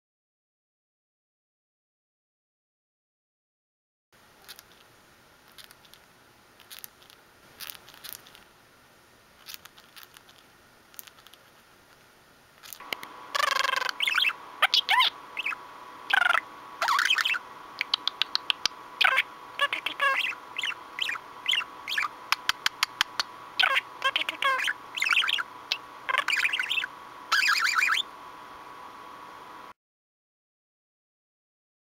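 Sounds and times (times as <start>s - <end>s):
steady hum: 4.2s - 29.8s
budgie beak grinding clicks: 5.5s - 8.5s, 9.4s - 11.6s, 17.8s - 18.8s, 22.3s - 23.3s
budgie chattering chirps: 12.6s - 28.1s.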